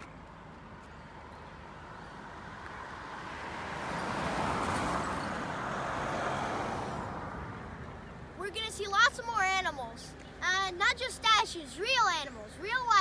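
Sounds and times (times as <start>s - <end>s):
pickup truck passing: 1.3s - 9.8s.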